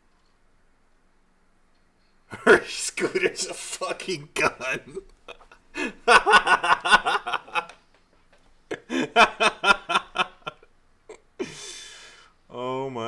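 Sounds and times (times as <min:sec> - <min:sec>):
person laughing hard: 0:02.5 - 0:07.8, 0:08.7 - 0:10.6.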